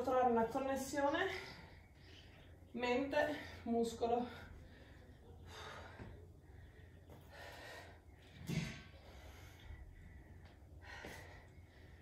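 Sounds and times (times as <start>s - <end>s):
woman breathing effortfully: 4.3s - 12.0s.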